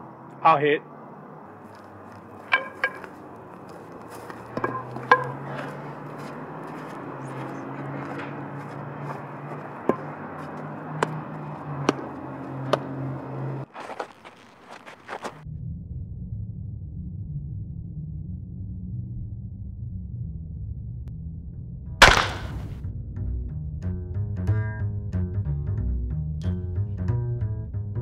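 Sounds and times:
wooden bat cracking balls: 1.6 - 15.4, 22.0 - 22.8.

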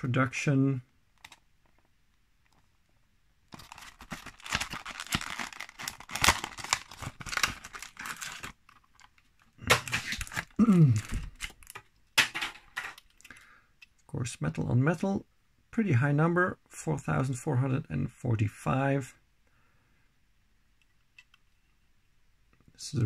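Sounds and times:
plastic packaging crackling: 3.5 - 11.9.

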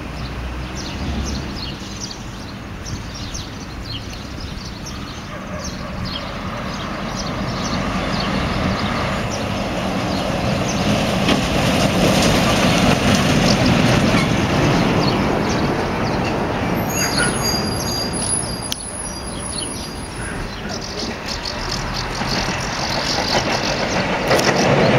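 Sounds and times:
heavy vehicle passing: 0.0 - 2.2, 5.9 - 24.9
high squeaks: 16.8 - 20.3.

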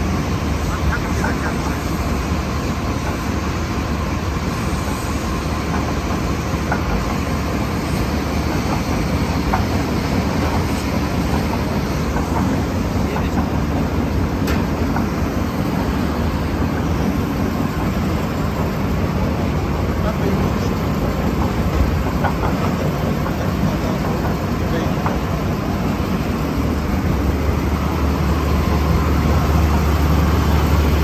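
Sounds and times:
drilling rig low rumble: 0.0 - 31.0.

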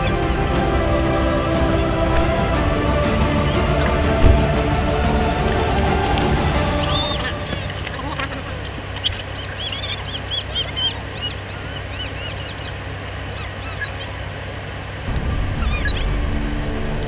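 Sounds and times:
deep rumble: 0.0 - 10.1, 15.0 - 17.0
car engine idling: 0.0 - 17.0
small birds chirping: 0.0 - 17.0.

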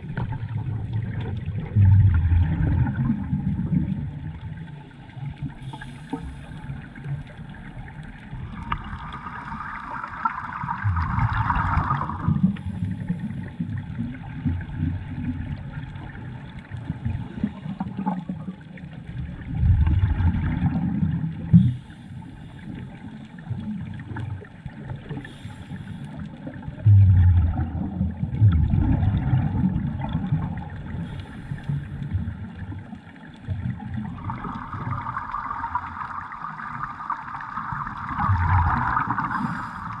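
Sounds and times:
underwater bubbling: 0.0 - 40.0
regulator air hiss: 5.6 - 6.6, 25.2 - 26.2, 31.0 - 32.0, 39.2 - 40.0.

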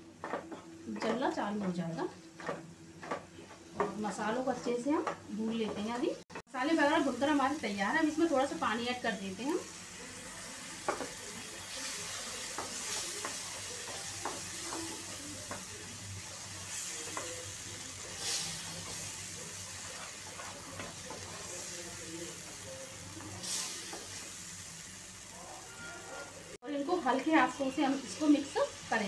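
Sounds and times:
food sizzling in a pan: 0.0 - 29.0
spatula scraping a pan: 18.0 - 21.8.

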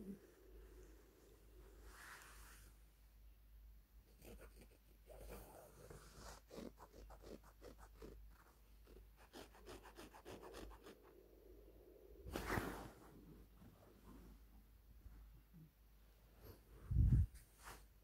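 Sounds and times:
rustling and scratching on fabric: 4.2 - 11.2, 12.2 - 14.5, 16.3 - 18.0.

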